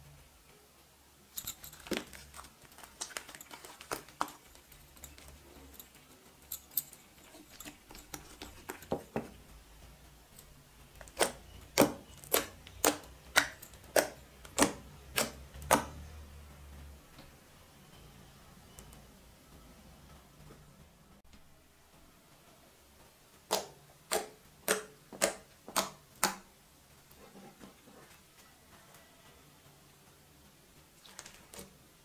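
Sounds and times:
sticky slime clicks: 11.0s - 16.0s, 23.5s - 26.5s.

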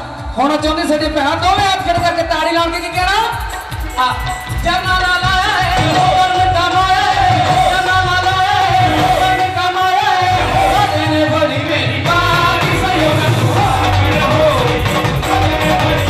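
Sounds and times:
instrumental accompaniment: 1.0s - 16.0s
person singing devotional song: 4.0s - 16.0s.

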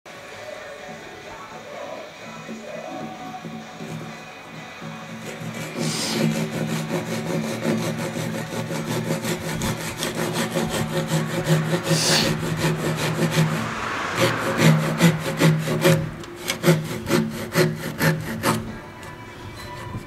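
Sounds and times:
hand saw rasping through wood: 3.3s - 20.0s.

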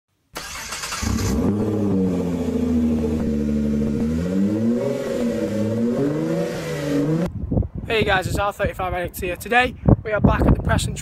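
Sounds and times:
car engine revving: 0.4s - 7.3s.

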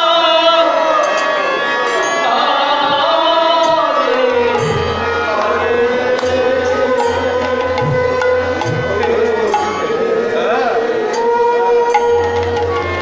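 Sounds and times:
harmonium: 0.0s - 13.0s
bamboo flute: 0.6s - 13.0s
man singing: 2.2s - 11.8s.

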